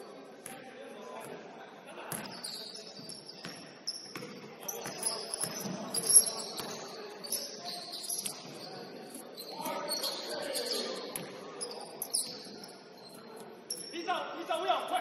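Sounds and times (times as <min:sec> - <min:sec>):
sneakers squeaking on hardwood: 0:02.1 - 0:13.8.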